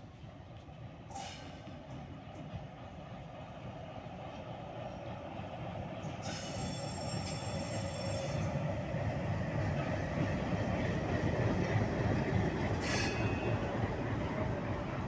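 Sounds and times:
diesel locomotive engine: 0:00.0 - 0:15.0
high wheel squeal: 0:06.2 - 0:08.6.

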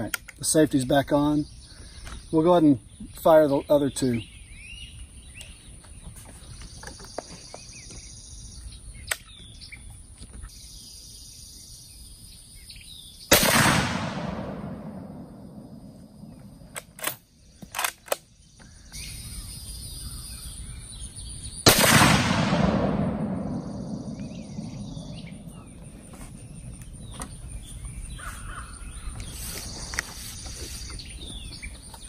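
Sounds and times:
rifle shot echoing: 0:13.3 - 0:16.7, 0:21.6 - 0:25.8.

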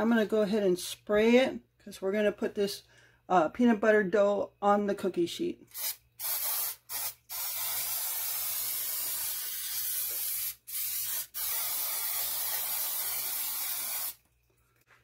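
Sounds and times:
aerosol spray hissing: 0:05.7 - 0:14.2.

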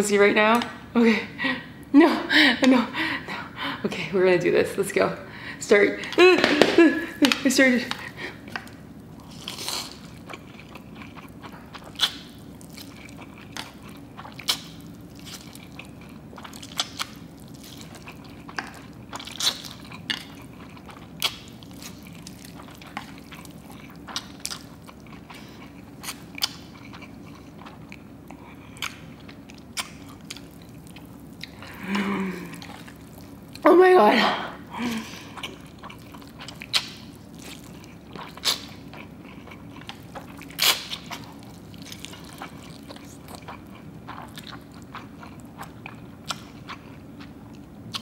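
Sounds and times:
faint steady hum: 0:00.0 - 0:48.0
person slurping and chewing noodles: 0:07.9 - 0:33.6, 0:34.7 - 0:47.1.

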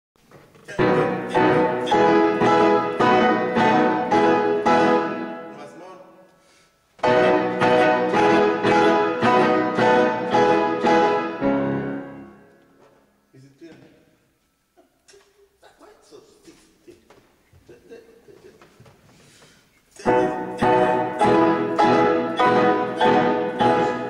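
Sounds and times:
piano playing repeated chords: 0:00.7 - 0:06.0, 0:07.0 - 0:12.8, 0:20.0 - 0:24.0.

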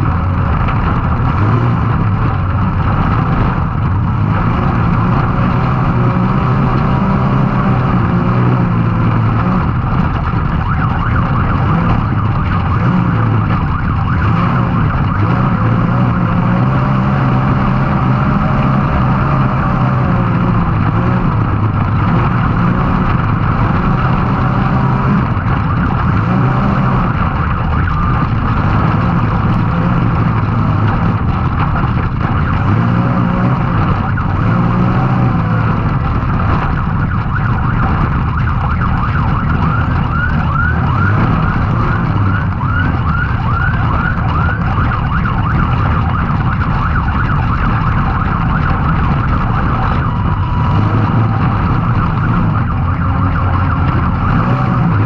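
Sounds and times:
high whine: 0:00.0 - 0:55.0
engine revving hard: 0:01.2 - 0:02.3, 0:11.6 - 0:27.5, 0:32.5 - 0:36.3, 0:49.9 - 0:55.0.

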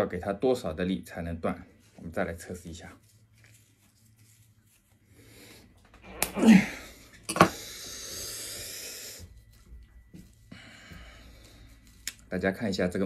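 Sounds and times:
man exhaling loudly: 0:06.2 - 0:08.6
breathy hiss: 0:06.4 - 0:09.4.

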